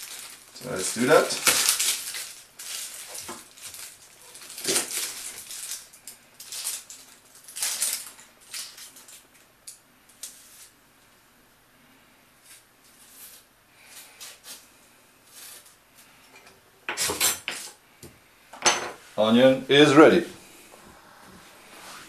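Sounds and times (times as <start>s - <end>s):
onion skin crackling and rustling: 0.0s - 10.8s, 12.4s - 16.2s.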